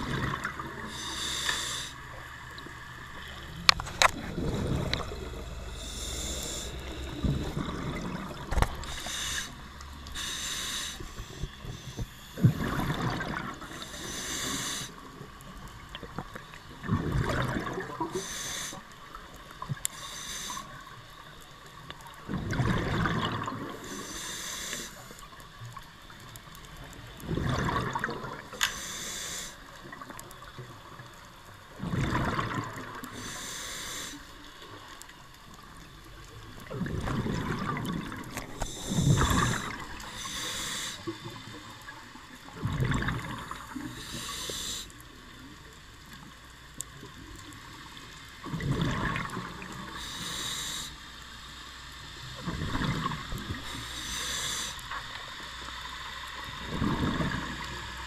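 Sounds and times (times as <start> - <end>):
regulator hiss on inhalation: 0.9 - 2.0, 5.7 - 7.1, 8.8 - 12.4, 13.7 - 15.0, 18.1 - 18.9, 19.9 - 21.0, 23.8 - 25.2, 28.6 - 29.7, 33.1 - 34.5, 38.6 - 41.4, 43.8 - 45.0, 49.9 - 51.2, 53.6 - 55.0.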